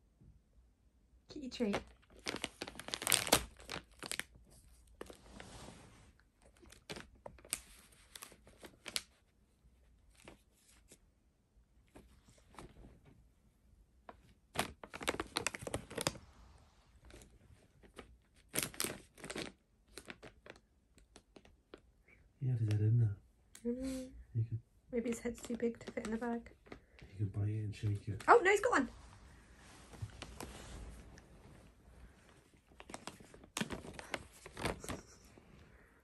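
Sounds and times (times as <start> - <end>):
plastic pouch crinkling: 1.6 - 5.2, 6.4 - 9.2, 14.5 - 16.2, 17.0 - 21.8, 29.7 - 35.1.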